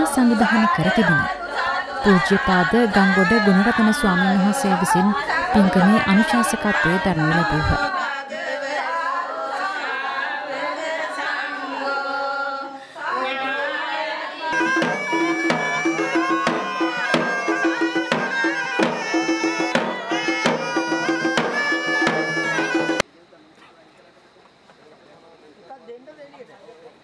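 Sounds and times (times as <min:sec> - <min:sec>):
singing with accompaniment: 0:00.0 - 0:23.0
drums in fast rhythm: 0:14.6 - 0:23.0
melody over drums: 0:14.6 - 0:23.0.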